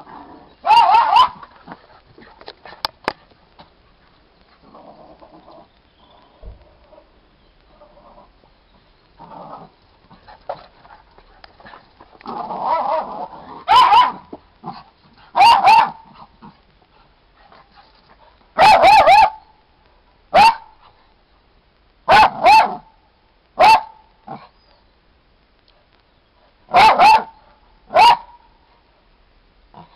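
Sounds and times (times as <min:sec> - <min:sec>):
small dog barking: 0:00.6 - 0:01.4, 0:12.7 - 0:14.3, 0:15.3 - 0:16.2, 0:18.6 - 0:19.4, 0:20.3 - 0:20.8, 0:22.1 - 0:22.9, 0:23.6 - 0:24.4, 0:26.7 - 0:28.4.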